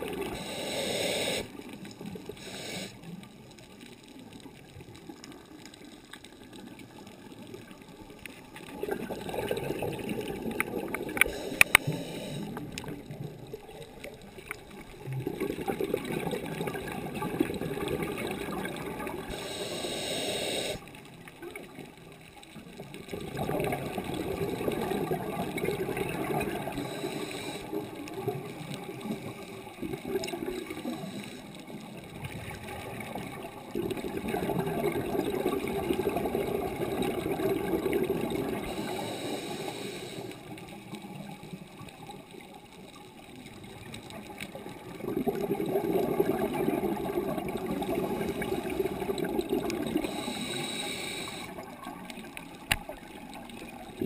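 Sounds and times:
regulator bubbling underwater: 0:08.6 - 0:19.6, 0:22.9 - 0:39.1, 0:43.6 - 0:54.0.

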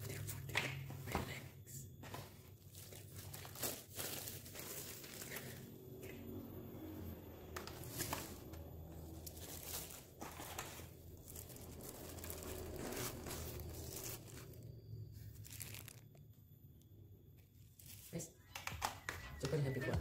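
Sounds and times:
plastic wrap crinkling: 0:02.5 - 0:06.4, 0:07.5 - 0:16.6, 0:17.4 - 0:18.2.

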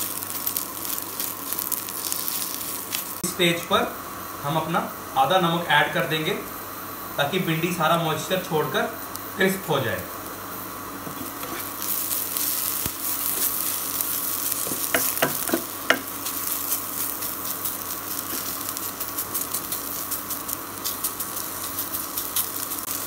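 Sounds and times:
okra sizzling in oil: 0:00.0 - 0:04.4, 0:10.1 - 0:23.0
wooden spatula knocking and scraping: 0:11.0 - 0:11.6, 0:14.7 - 0:16.1.

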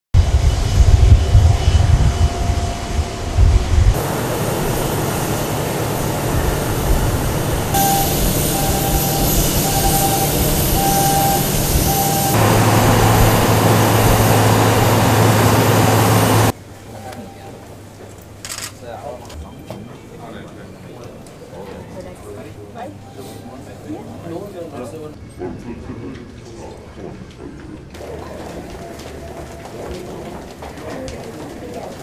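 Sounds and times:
steady low hum: 0:00.2 - 0:16.5
wind buffeting microphone: 0:00.2 - 0:16.5
jet aircraft noise: 0:00.2 - 0:16.6
ground equipment noise: 0:04.0 - 0:16.5
short beeps: 0:07.8 - 0:12.4.

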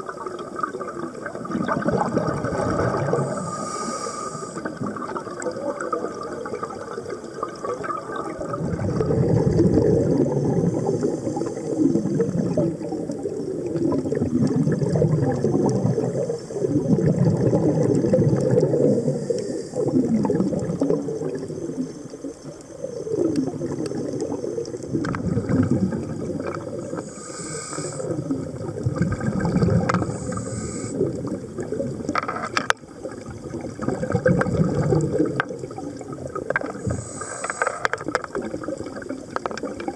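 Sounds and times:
diver bubbles gurgling: 0:00.0 - 0:39.9.

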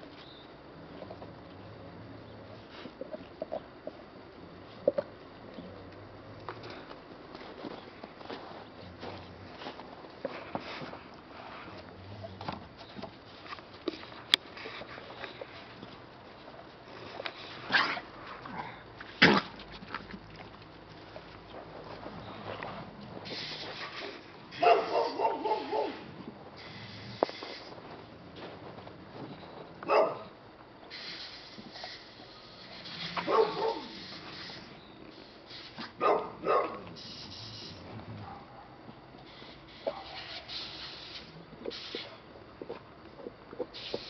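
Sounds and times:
dog barks: 0:24.5 - 0:26.1, 0:29.8 - 0:30.3, 0:33.2 - 0:34.0, 0:36.0 - 0:36.9, 0:38.2 - 0:38.8, 0:39.8 - 0:40.5.

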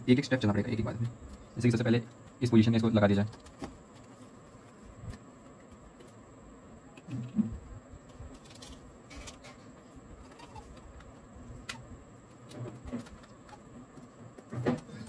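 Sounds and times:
faint steady hum: 0:00.0 - 0:15.0
cardboard handling clicks and rustles: 0:03.2 - 0:06.2, 0:07.0 - 0:15.0.

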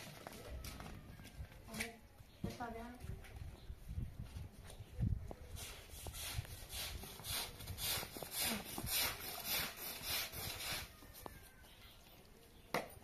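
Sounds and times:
broom scrubbing a wet rug: 0:05.6 - 0:10.9.

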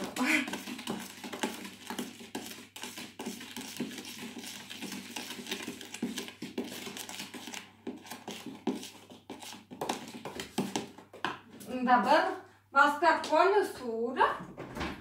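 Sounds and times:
utensil scraping plastic bowl: 0:00.0 - 0:11.0.

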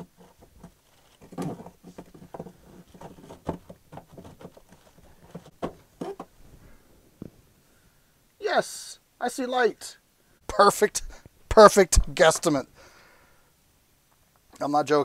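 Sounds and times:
hands digging out insulation: 0:00.0 - 0:06.3.

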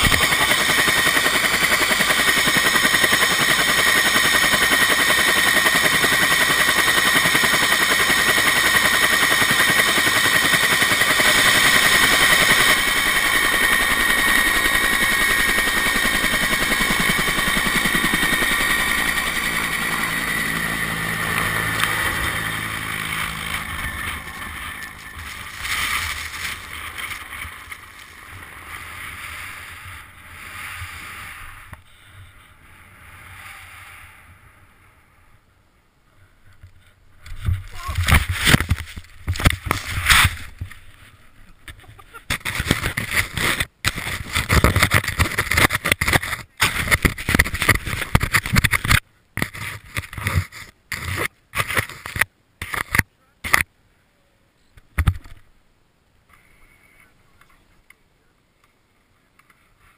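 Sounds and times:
helicopter rotor chop: 0:00.0 - 0:30.2, 0:42.3 - 0:53.6
helicopter turbine whine: 0:00.0 - 0:33.6.

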